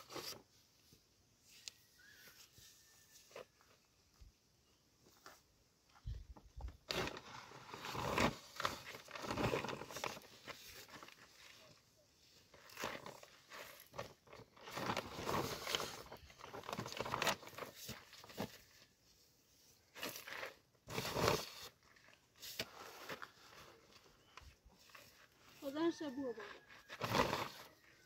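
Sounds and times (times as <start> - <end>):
shovel scraping through sand: 19.9 - 23.9.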